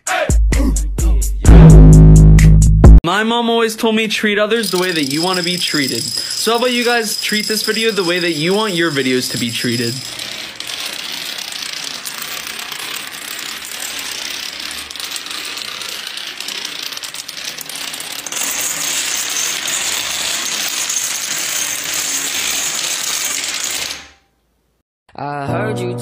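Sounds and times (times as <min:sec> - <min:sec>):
dense rattling and clicking: 0:04.6 - 0:24.1.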